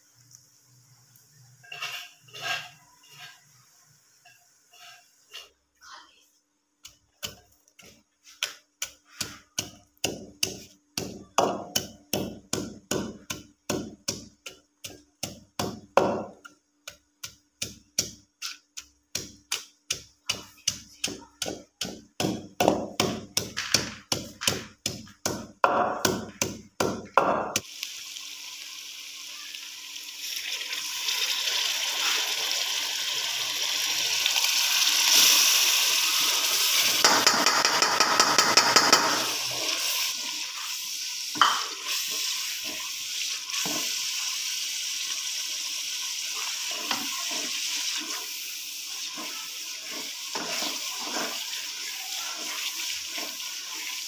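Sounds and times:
oil sizzling in a frying pan: 0.0s - 5.8s, 6.7s - 54.0s
pestle pounding in mortar: 8.8s - 27.6s, 37.0s - 39.2s.

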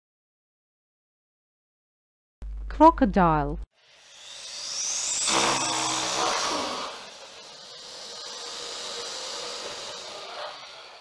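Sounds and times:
low growl: 5.3s - 7.2s
crocodile hissing: 5.3s - 11.0s.

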